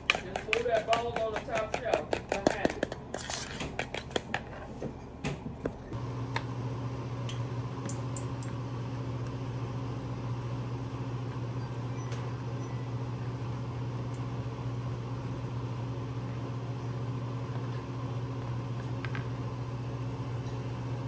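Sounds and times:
metal spoon scraping a bowl: 0.0s - 4.7s
low mechanical hum: 0.0s - 21.0s.

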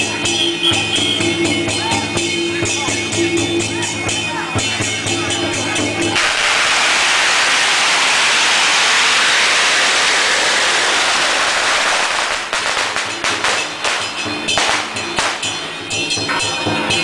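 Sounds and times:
firecrackers crackling and popping: 4.1s - 16.5s.

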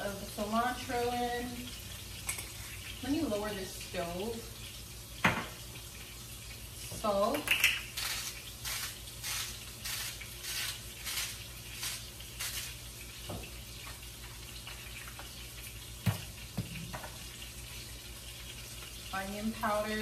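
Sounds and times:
salt shaker rasping: 7.3s - 12.9s.

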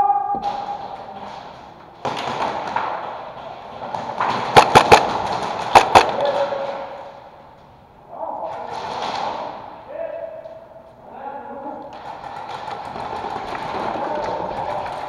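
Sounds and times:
airsoft gunshots echoing: 4.0s - 6.8s.

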